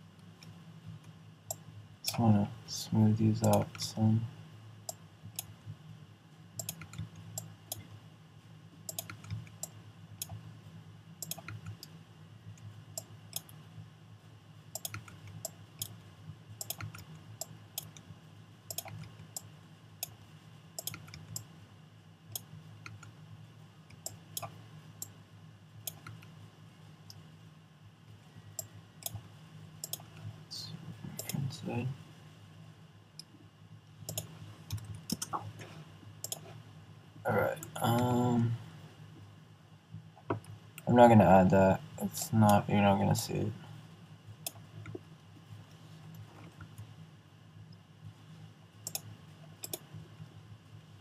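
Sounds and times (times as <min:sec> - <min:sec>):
low steady hum: 0:00.0 - 0:51.0
mouse and keyboard clicking: 0:06.6 - 0:07.8, 0:08.9 - 0:10.4, 0:11.2 - 0:11.9, 0:14.8 - 0:16.0, 0:16.6 - 0:18.0, 0:18.7 - 0:20.2, 0:20.8 - 0:21.5, 0:34.1 - 0:35.5, 0:48.8 - 0:49.9.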